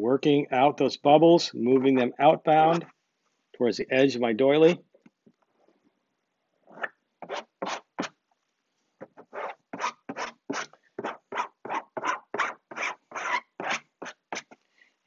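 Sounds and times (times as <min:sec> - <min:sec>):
plastic squeegee scraping fabric: 0:09.0 - 0:14.6.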